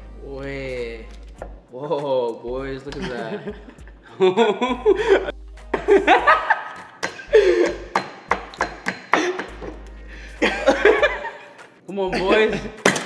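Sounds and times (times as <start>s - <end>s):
men laughing: 2.9s - 8.0s, 9.1s - 12.8s.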